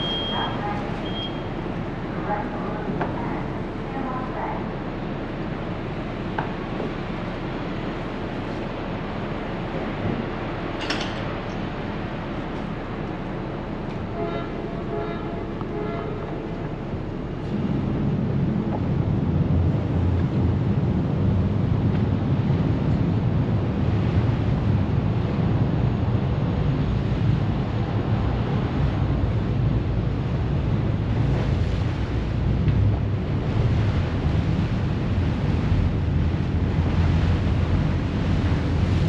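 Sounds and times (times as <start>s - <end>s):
ferry diesel engines running: 0.0s - 39.0s
water washing past hull: 0.0s - 39.0s
wind buffeting microphone: 15.6s - 39.0s.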